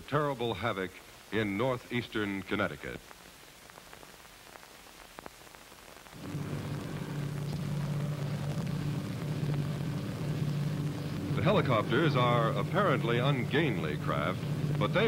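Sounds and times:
helicopter drone: 0:06.2 - 0:15.0.

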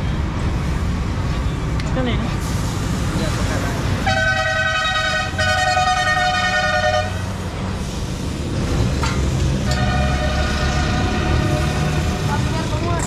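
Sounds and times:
vehicle horn blasts: 0:04.0 - 0:07.2, 0:09.7 - 0:11.9.

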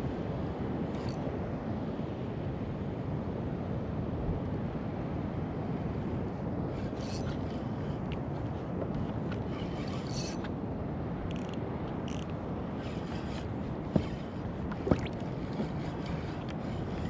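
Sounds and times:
wind: 0:00.0 - 0:17.0
water washing around kayak: 0:12.4 - 0:17.0.

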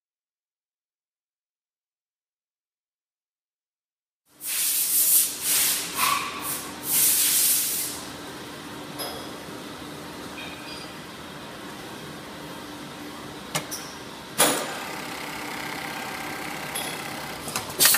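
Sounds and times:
sharp hisses of air: 0:04.4 - 0:08.0
machine humming: 0:14.6 - 0:17.9.

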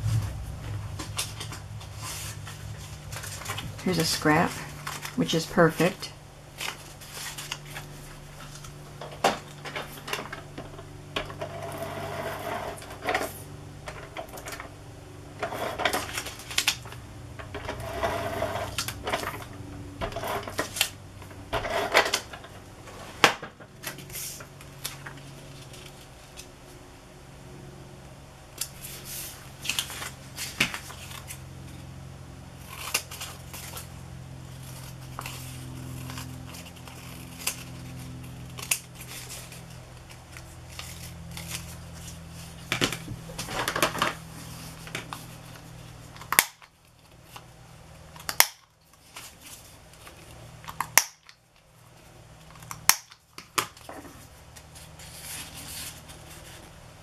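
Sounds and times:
steady low hum: 0:00.0 - 0:57.0
paper being handled: 0:06.5 - 0:08.8.

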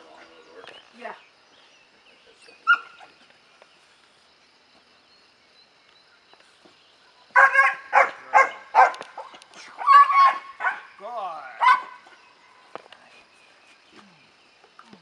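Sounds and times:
puppy barking: 0:07.4 - 0:10.9, 0:11.6 - 0:12.0.

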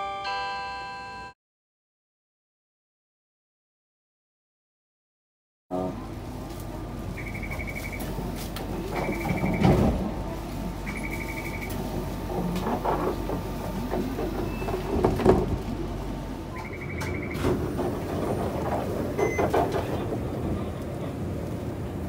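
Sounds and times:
sliding door knocks and rumble: 0:08.6 - 0:21.2.

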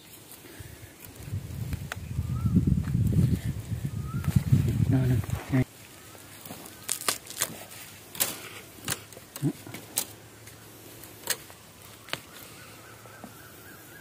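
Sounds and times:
dry bamboo snapping and crackling: 0:00.0 - 0:13.3
sharp cracks: 0:06.7 - 0:10.6.

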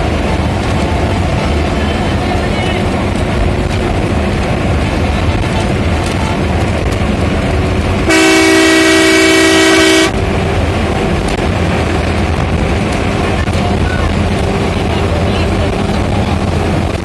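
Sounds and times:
bus engine and tyres rumble: 0:00.0 - 0:17.0
bus horn blast: 0:08.0 - 0:10.2.

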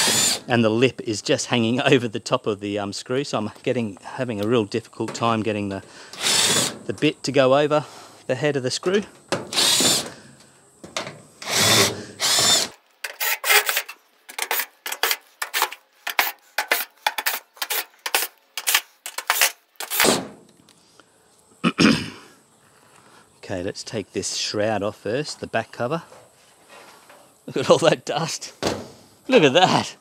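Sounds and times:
impact driver undoing screws: 0:00.0 - 0:00.5, 0:06.1 - 0:06.9, 0:09.3 - 0:10.3, 0:11.0 - 0:20.2.

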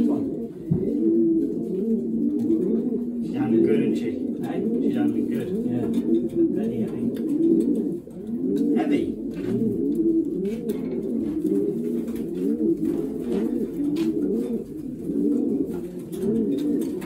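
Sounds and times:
pigeons cooing: 0:00.0 - 0:17.0.

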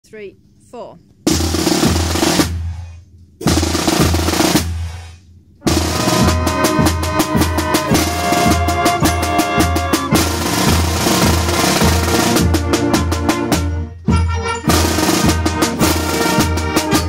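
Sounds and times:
snare drum rolls: 0:01.3 - 0:13.8, 0:14.7 - 0:17.0
low drum beat: 0:05.6 - 0:14.1.

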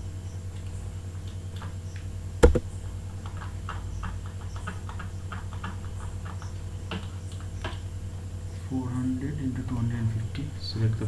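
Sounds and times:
low electrical hum: 0:00.0 - 0:11.0
mouse and keyboard clicks: 0:02.4 - 0:02.6
sharp loud knock: 0:02.4 - 0:02.6.

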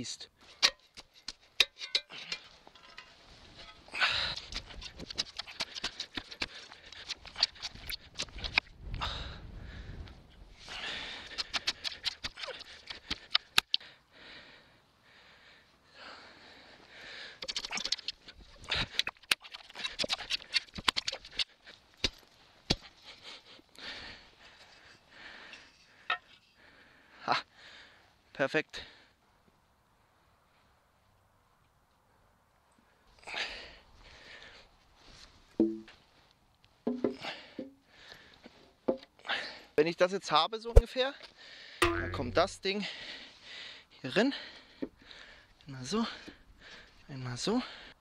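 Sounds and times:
soil scraping: 0:00.4 - 0:08.7, 0:17.4 - 0:23.2.

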